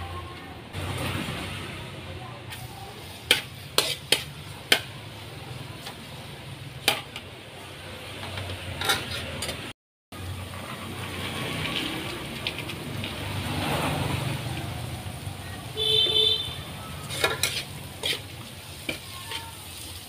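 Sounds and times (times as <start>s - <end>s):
metal spatula scraping a wok: 2.5s - 7.3s, 8.1s - 9.7s, 16.5s - 20.0s.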